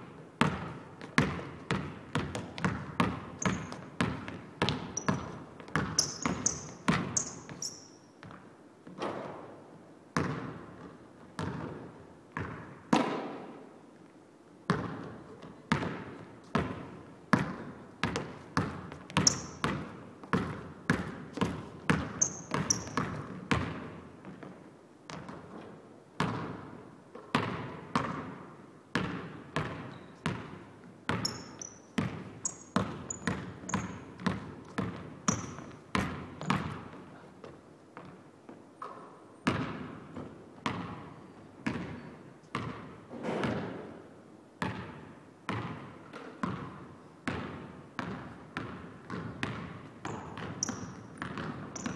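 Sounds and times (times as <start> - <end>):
basketball bouncing on hardwood floor: 0.4 - 9.2, 10.2 - 11.8, 12.4 - 13.4, 14.7 - 24.5, 26.2 - 28.3, 29.0 - 37.1, 38.8 - 43.8, 44.6 - 51.9
short high squeaks: 6.0 - 8.1, 22.2 - 23.0.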